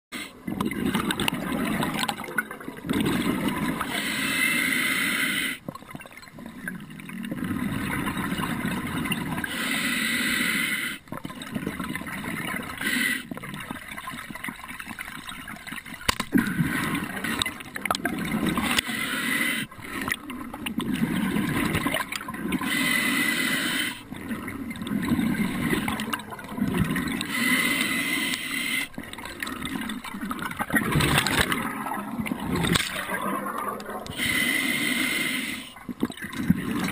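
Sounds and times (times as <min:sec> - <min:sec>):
regulator inhale hiss: 0:03.9 - 0:05.6, 0:09.5 - 0:11.1, 0:12.8 - 0:13.3, 0:18.8 - 0:19.8, 0:22.6 - 0:24.1, 0:27.3 - 0:29.0, 0:34.1 - 0:35.8
bubbling exhales: 0:16.3 - 0:36.9.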